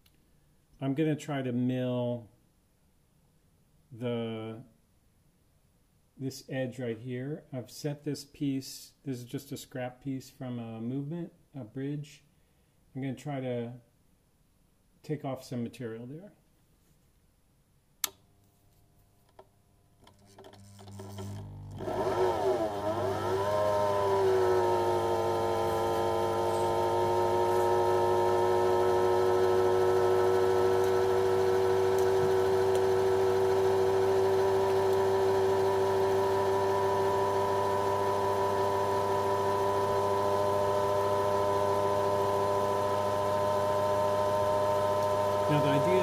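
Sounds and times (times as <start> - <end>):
lathe motor whine: 20.5 - 46.0.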